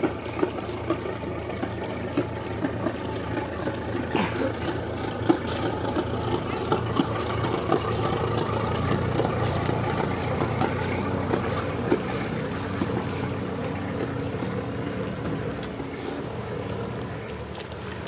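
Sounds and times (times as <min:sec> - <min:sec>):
boat engine humming: 0:00.0 - 0:18.0.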